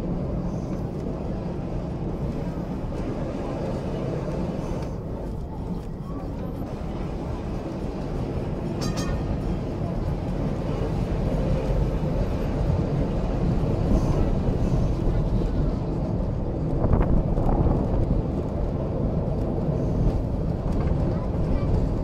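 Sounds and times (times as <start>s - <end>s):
tram wheels rumbling on rails: 0.0s - 22.0s.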